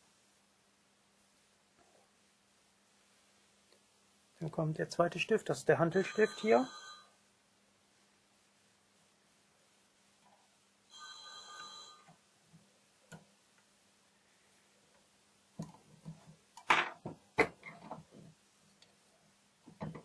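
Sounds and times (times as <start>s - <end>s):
steady ringing tone: 6.0s - 7.1s, 10.9s - 12.1s.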